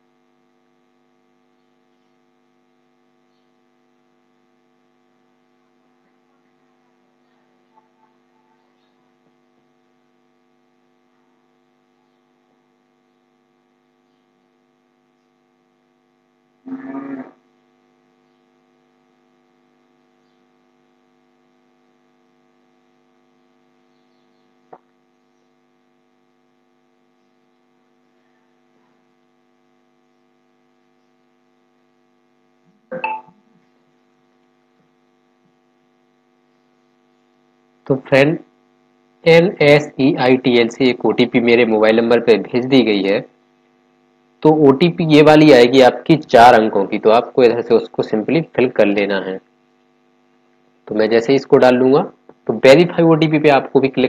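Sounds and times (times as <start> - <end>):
electrical mains hum: 0.0 - 54.0.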